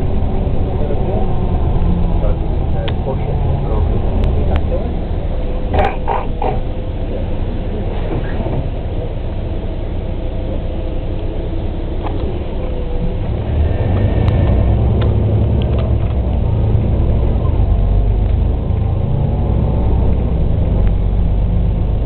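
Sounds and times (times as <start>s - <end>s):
bus engine drone: 0.0s - 22.0s.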